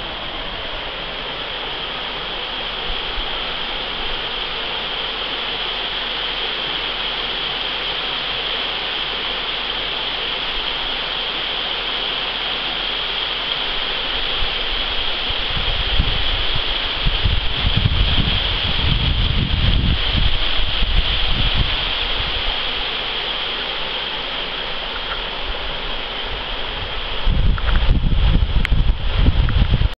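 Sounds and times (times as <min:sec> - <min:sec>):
creek water rushing: 0:00.0 - 0:29.9
wind buffeting microphone: 0:14.2 - 0:22.8, 0:25.0 - 0:29.9.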